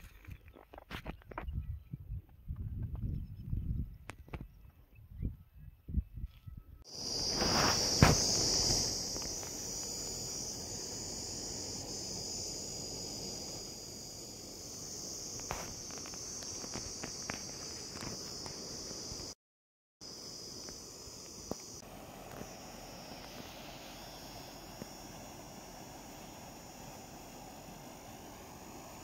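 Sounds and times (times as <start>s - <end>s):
insect chorus: 6.9s - 19.4s, 20.0s - 29.0s
sharp knock: 8.0s - 8.5s.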